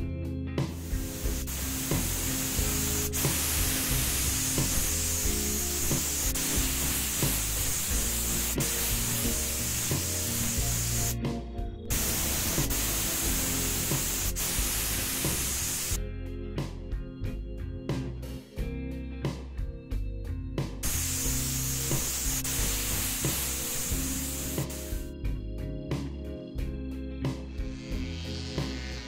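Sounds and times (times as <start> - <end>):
background music: 0.0 - 29.0
spray paint hissing: 0.8 - 11.2, 11.9 - 16.0, 20.8 - 25.1.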